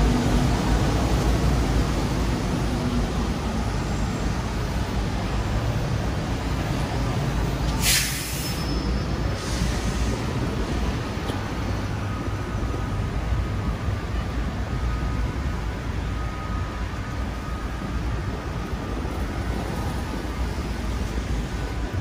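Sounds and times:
traffic on wet street: 0.0 - 22.0
short sharp hiss: 7.8 - 8.7.

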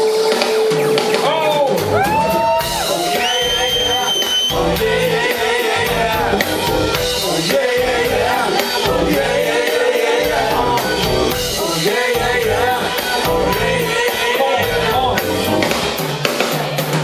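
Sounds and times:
steady drum beat: 0.0 - 17.0
person singing: 2.0 - 15.8.

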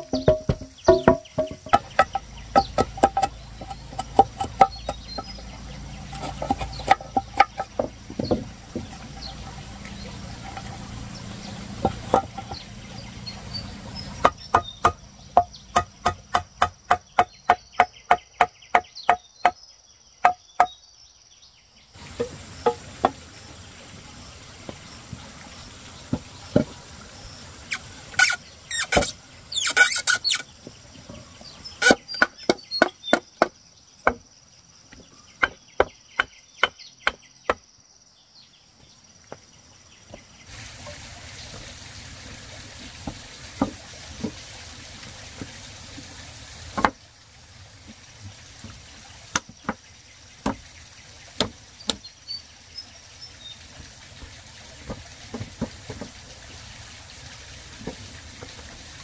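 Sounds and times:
sharp knocks: 0.0 - 5.5, 14.2 - 19.6.

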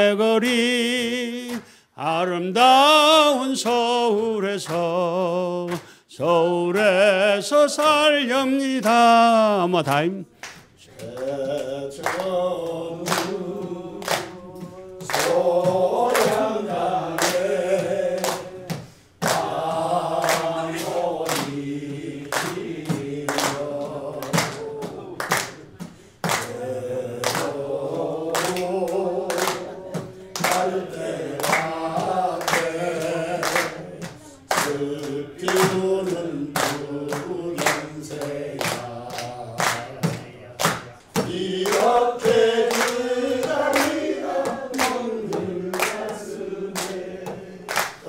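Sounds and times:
hands clapping on the beat: 0.4 - 1.8, 2.6 - 48.0.

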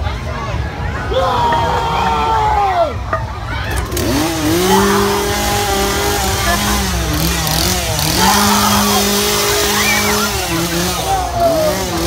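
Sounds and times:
engine revving: 3.7 - 12.0.

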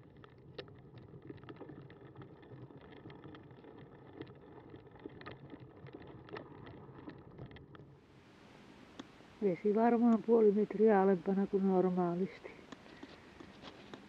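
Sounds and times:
small clicks and rattles: 0.0 - 8.0
bicycle tyres rolling on gravel: 0.0 - 8.7.

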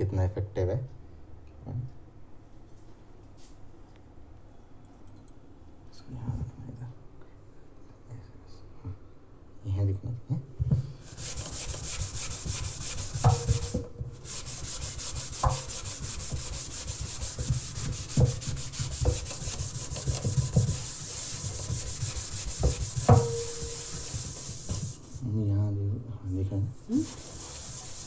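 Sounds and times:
scrub pad scouring steel sink: 11.0 - 25.3, 26.8 - 28.0.

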